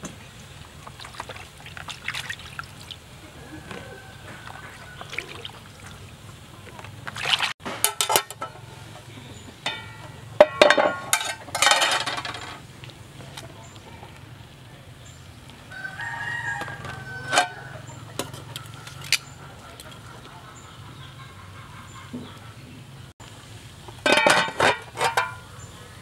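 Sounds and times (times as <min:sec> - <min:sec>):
rooster crowing: 0:03.3 - 0:05.5, 0:15.7 - 0:19.2.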